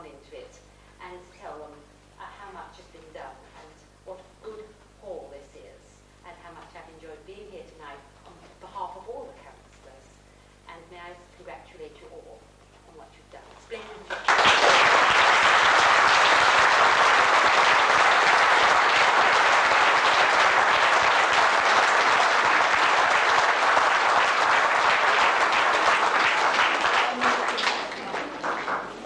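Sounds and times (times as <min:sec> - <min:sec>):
audience applauding: 0:14.1 - 0:29.0.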